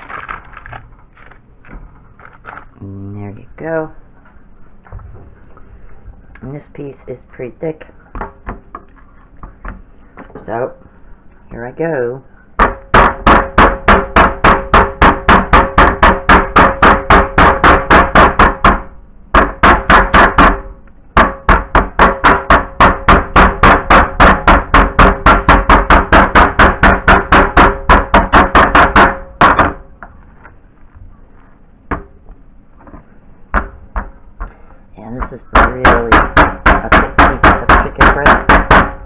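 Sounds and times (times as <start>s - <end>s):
mallet pounding meat on cutting board: 12.6s - 29.8s, 35.2s - 39.0s.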